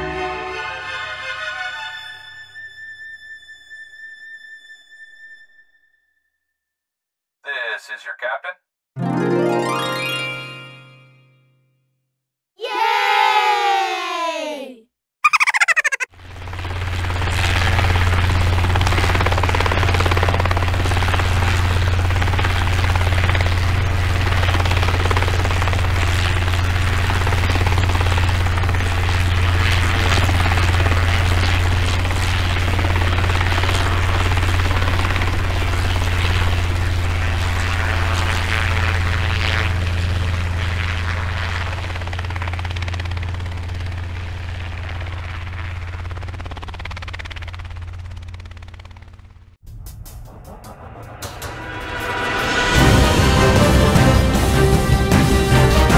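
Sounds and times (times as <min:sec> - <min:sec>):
aircraft hum with rushing hiss: 0:15.6 - 0:55.9.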